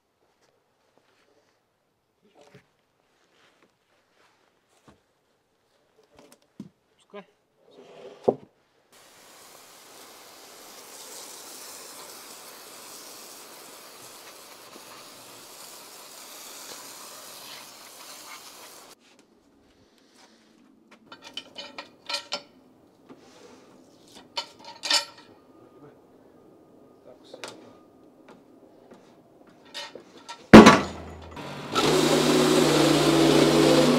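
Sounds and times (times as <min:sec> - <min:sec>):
pressure washer spraying hiss: 0:09.0 - 0:19.0
loud knock: 0:30.6 - 0:31.2.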